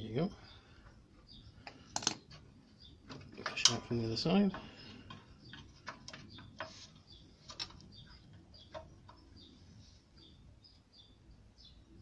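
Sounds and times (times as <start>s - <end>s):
faint bird chirps: 3.9s - 12.0s.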